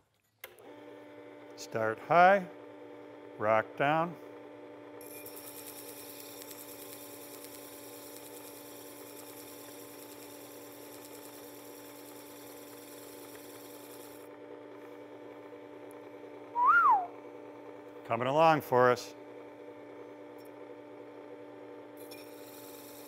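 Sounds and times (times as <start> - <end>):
sharpener motor humming: 4.4 - 14.4, 21.5 - 23.0
rising and falling tone: 16.6 - 17.1.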